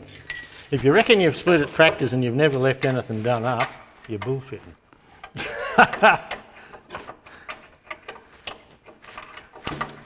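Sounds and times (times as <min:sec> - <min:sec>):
man's voice: 0:00.7 - 0:04.8
hand ratchet clicking: 0:05.2 - 0:10.0.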